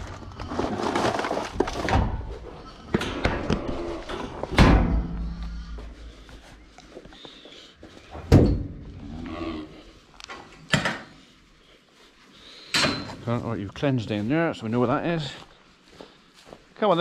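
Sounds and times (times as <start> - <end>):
metal bangs and clanks: 1.8 - 6.0, 8.2 - 8.8.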